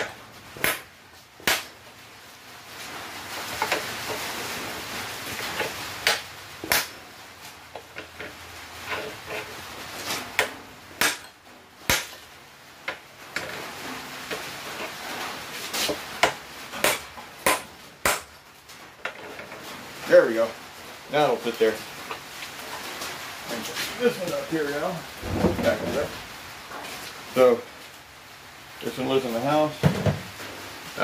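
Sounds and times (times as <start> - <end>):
hammer striking steel bar: 10.4 - 12.2, 16.2 - 18.3.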